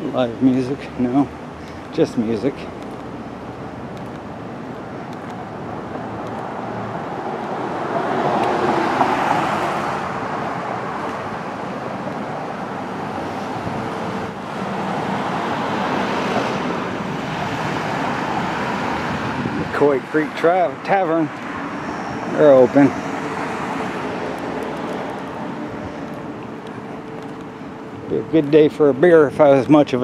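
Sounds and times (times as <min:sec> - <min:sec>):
cars passing: 0:00.0 - 0:30.0.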